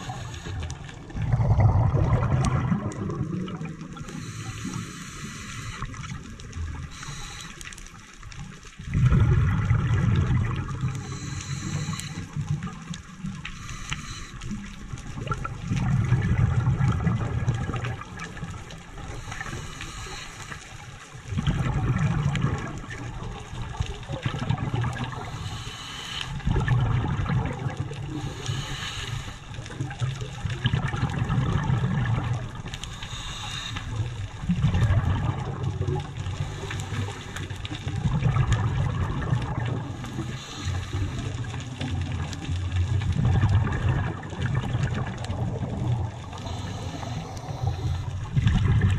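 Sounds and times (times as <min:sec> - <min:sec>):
regulator hisses: 0:00.0 - 0:00.8, 0:04.1 - 0:06.0, 0:06.8 - 0:07.7, 0:11.0 - 0:12.3, 0:13.5 - 0:14.6, 0:19.1 - 0:20.7, 0:25.1 - 0:26.4, 0:28.2 - 0:29.6, 0:32.8 - 0:34.1, 0:46.3 - 0:48.2
underwater bubbles gurgling: 0:00.0 - 0:48.9.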